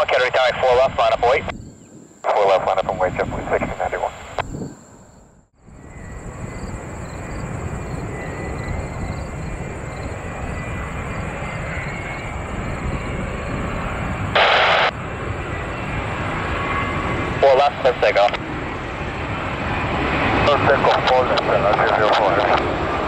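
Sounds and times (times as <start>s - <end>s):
jet engines rumbling: 0.0s - 23.0s.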